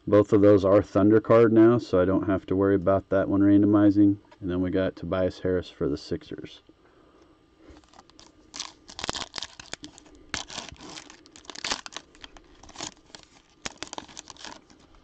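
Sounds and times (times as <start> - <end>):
foil wrapper tearing and crackling: 7.7 - 15.0.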